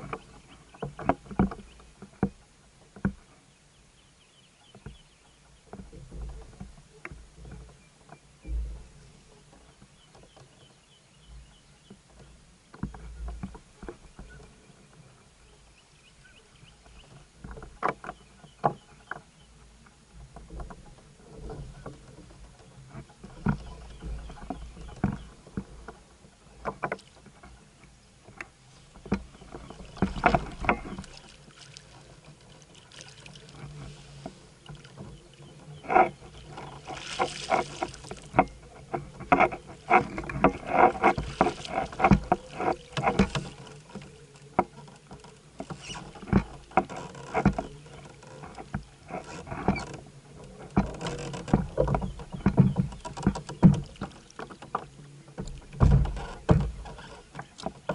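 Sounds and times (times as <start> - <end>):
knocks against kayak hull: 50.7 - 54.8, 55.4 - 57.9.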